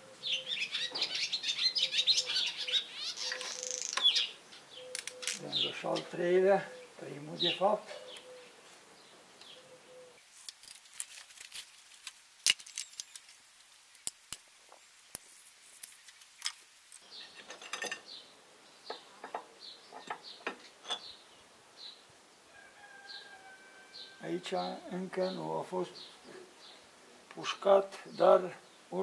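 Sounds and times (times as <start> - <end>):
hand tools clinking on metal: 16.4 - 18.2.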